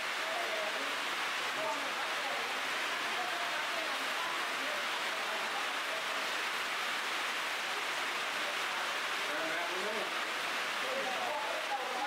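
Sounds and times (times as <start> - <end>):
heavy rain on foliage: 0.0 - 12.0.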